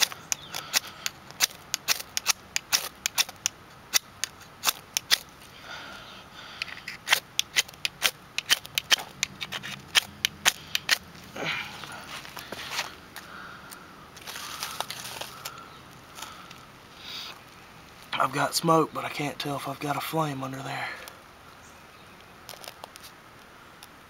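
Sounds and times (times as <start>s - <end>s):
striker scraping ferrocerium rod: 0.0s - 5.3s, 6.6s - 11.0s.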